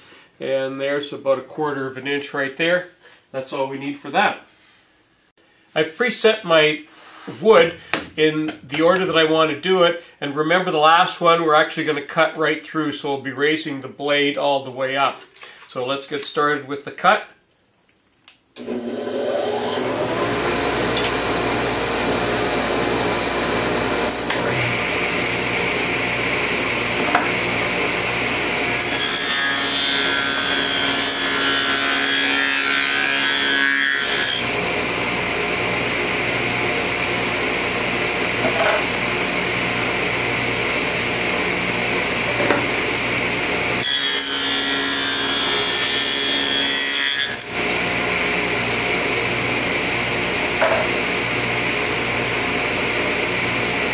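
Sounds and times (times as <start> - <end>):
table saw cutting wood: 18.6 - 53.9
table saw running: 18.6 - 53.9.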